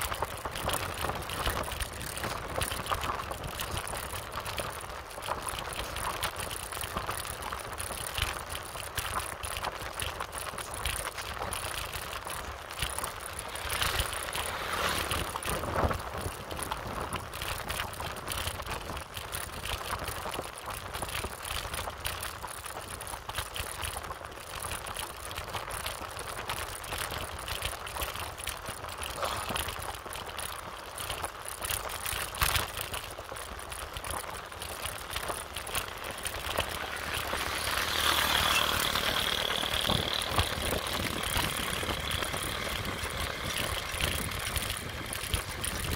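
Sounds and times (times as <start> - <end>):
bicycle rattling along road: 0.0 - 45.9
wind rushing over microphone: 11.4 - 19.6, 35.8 - 45.9.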